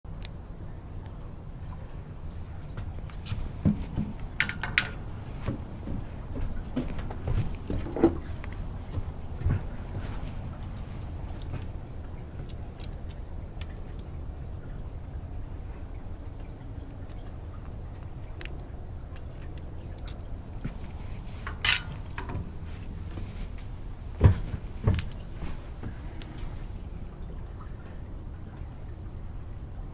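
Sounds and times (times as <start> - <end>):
insects droning: 0.1 - 29.9
low steady rumble: 0.1 - 29.9.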